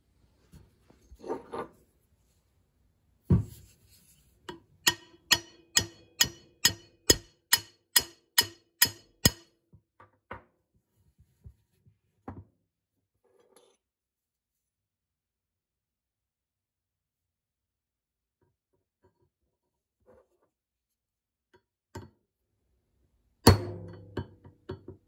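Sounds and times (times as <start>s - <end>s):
hammer striking metal: 4.8s - 9.6s.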